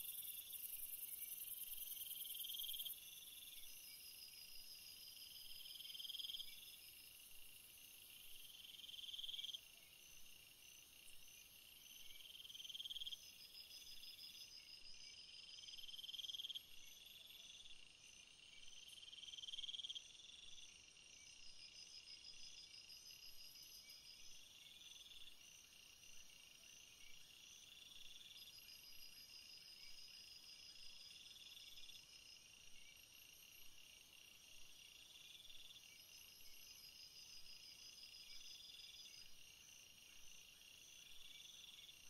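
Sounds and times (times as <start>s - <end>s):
cricket trill: 0.0s - 20.4s.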